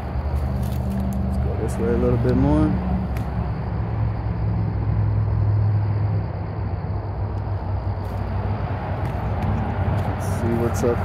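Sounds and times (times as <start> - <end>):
highway traffic rushing: 0.0 - 11.0.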